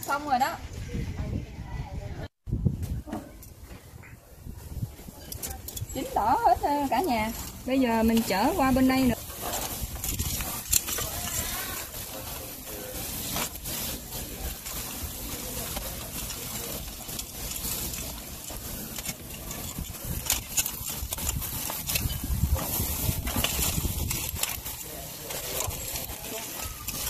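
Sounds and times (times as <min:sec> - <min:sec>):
metal tongs clicking and scraping: 0:05.2 - 0:27.0
steady hiss: 0:08.2 - 0:27.0.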